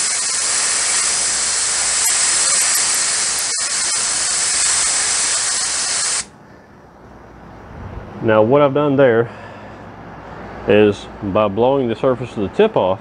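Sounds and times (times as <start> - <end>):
compressed air hissing from hose: 0.0 - 6.3.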